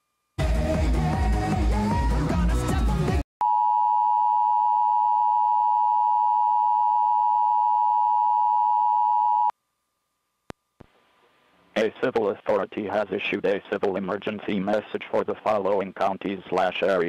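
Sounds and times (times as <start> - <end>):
music: 0.4 - 3.2.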